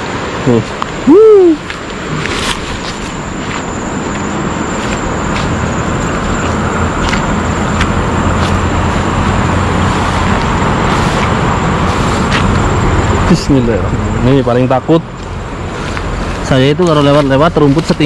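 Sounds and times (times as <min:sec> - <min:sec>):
steady rushing noise: 0:00.0 - 0:18.0
footsteps brushing through grass: 0:01.6 - 0:13.4, 0:15.6 - 0:18.0.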